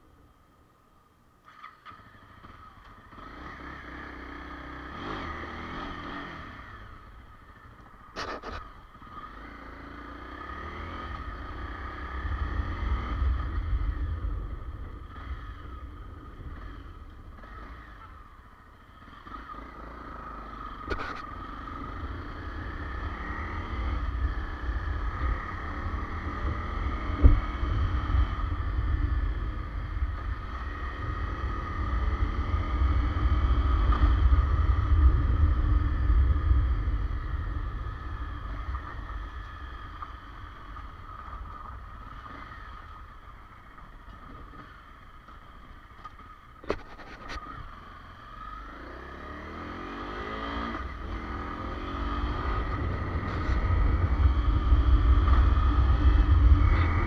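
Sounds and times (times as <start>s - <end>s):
motorcycle engine revving: 1.5s - 57.0s
wind rumble on microphone: 10.7s - 18.3s, 22.2s - 44.8s, 50.2s - 57.0s.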